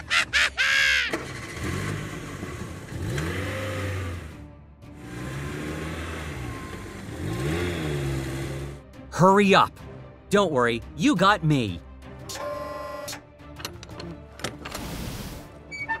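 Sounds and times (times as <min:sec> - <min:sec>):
engine revving: 0:00.9 - 0:09.0.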